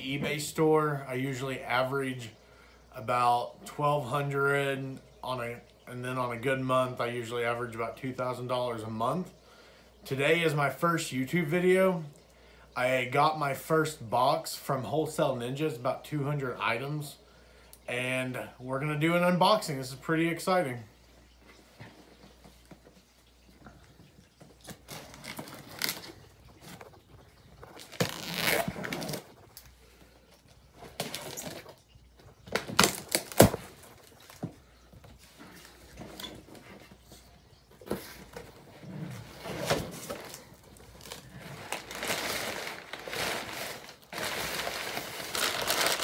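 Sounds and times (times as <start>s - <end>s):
heavy paper crinkling: 24.7s - 29.7s, 39.2s - 46.0s
paper rustling and tearing: 24.8s - 26.3s, 39.4s - 46.0s.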